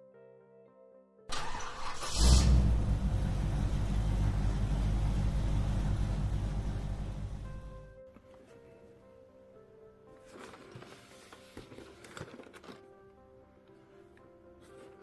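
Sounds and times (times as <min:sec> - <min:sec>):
car engine running steadily: 0:01.4 - 0:07.9.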